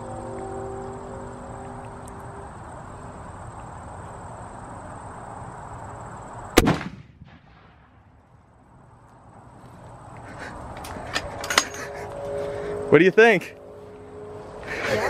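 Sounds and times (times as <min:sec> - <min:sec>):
rifle shot: 0:06.6 - 0:08.0.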